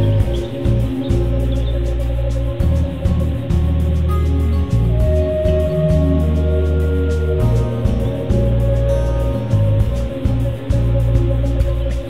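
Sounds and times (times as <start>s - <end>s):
background music with bass line: 0.0s - 12.0s.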